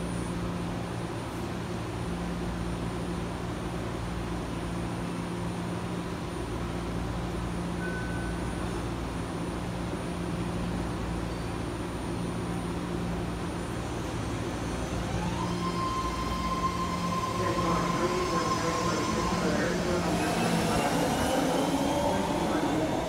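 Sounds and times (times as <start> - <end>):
rail noise: 0.0 - 23.0
train electric hum: 0.0 - 23.0
train motor whine: 13.9 - 23.0.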